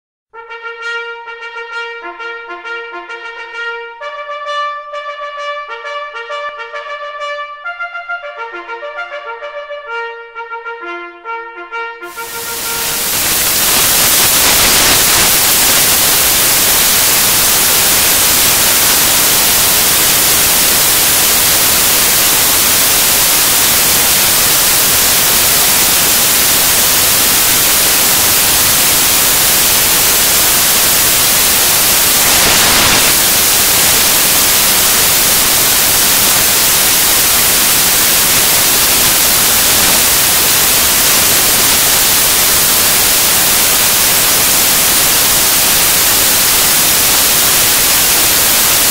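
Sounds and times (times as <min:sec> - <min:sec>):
loud static hiss: 0:12.1 - 0:48.9.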